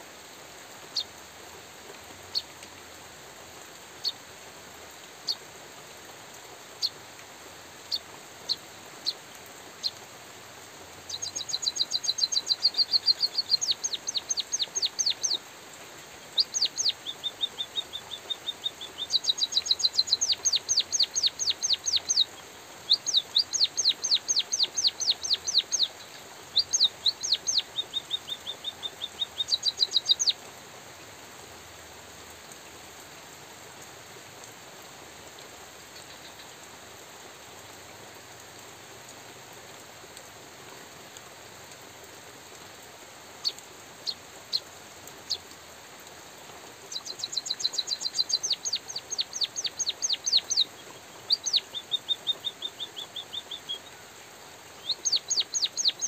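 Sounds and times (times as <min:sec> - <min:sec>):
light drizzle hiss: 0:00.0 - 0:56.0
small bird chirping and trilling: 0:11.1 - 0:15.4, 0:16.2 - 0:30.4, 0:43.4 - 0:44.6, 0:46.9 - 0:54.0, 0:54.8 - 0:56.0.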